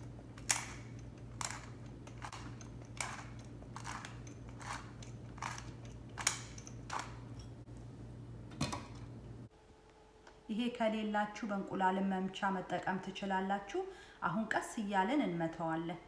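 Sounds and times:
pepper mill grinding: 0:00.0 - 0:07.6
steady low hum: 0:00.0 - 0:16.0.

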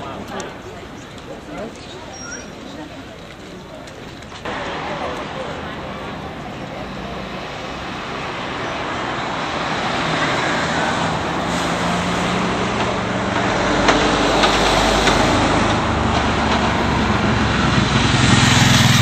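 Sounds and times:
cars passing: 0:04.4 - 0:19.0.

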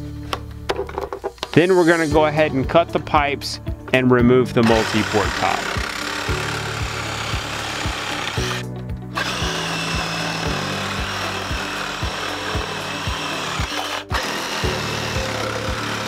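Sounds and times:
background music with steady beat: 0:00.0 - 0:16.0
reciprocating saw cutting pipe: 0:04.6 - 0:16.0.

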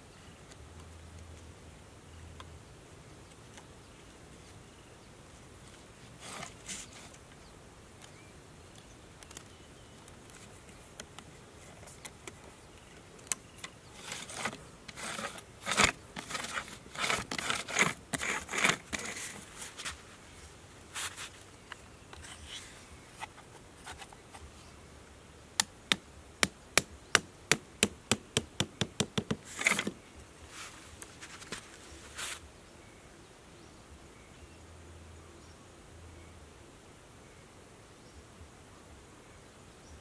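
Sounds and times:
hands rustling plastic basket and sticks: 0:09.2 - 0:22.6, 0:29.2 - 0:32.4.

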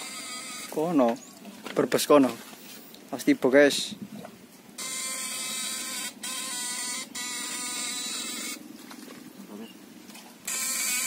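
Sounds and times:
inverter buzzing: 0:00.0 - 0:01.0, 0:04.8 - 0:08.7, 0:10.4 - 0:11.0.

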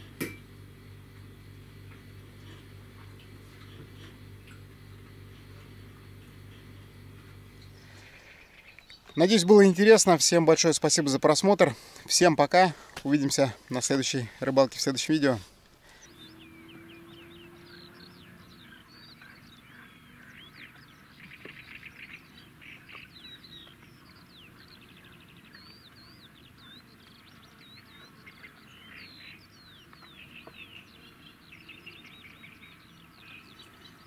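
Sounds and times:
songbirds chirping and trilling: 0:00.0 - 0:34.0.

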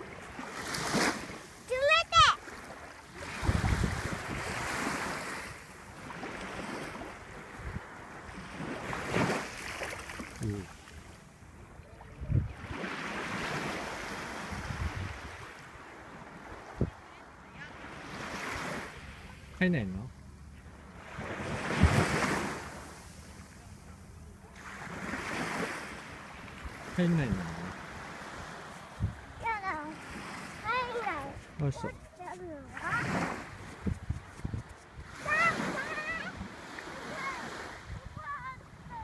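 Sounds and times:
ocean surf: 0:00.0 - 0:11.4, 0:12.6 - 0:20.1, 0:20.7 - 0:39.0
waves washing onto beach: 0:00.0 - 0:39.0
wind buffeting microphone: 0:03.2 - 0:04.9, 0:12.0 - 0:12.8, 0:14.4 - 0:15.5, 0:27.9 - 0:29.7, 0:30.7 - 0:36.6.

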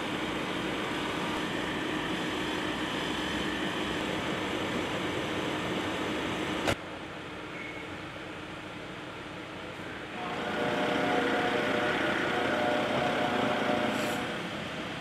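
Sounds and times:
engine droning: 0:09.9 - 0:15.0.

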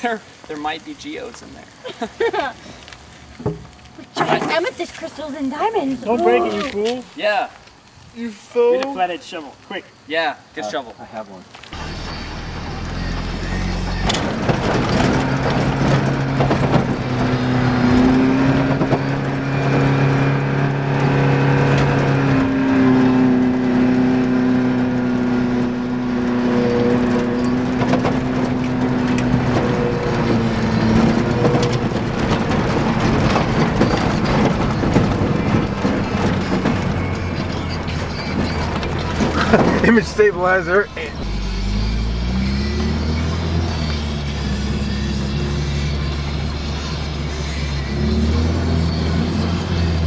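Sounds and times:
vehicle engine under load: 0:11.7 - 0:50.0.

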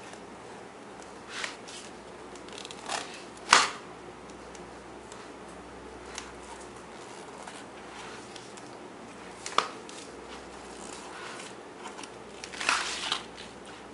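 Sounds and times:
picture book rubbing and shuffling: 0:01.2 - 0:02.0, 0:06.4 - 0:08.6, 0:09.2 - 0:13.9.

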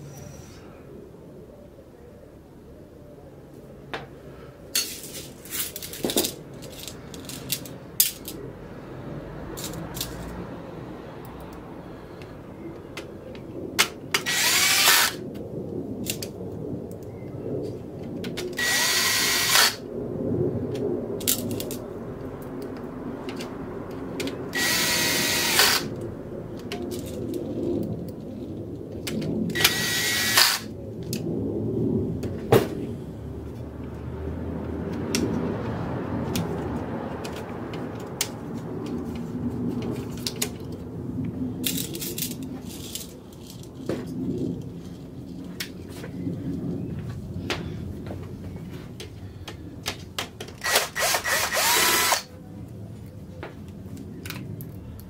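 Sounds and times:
cordless drill motor whine: 0:14.2 - 0:15.2, 0:18.6 - 0:19.8, 0:24.5 - 0:25.9, 0:29.6 - 0:30.7, 0:50.6 - 0:52.3.

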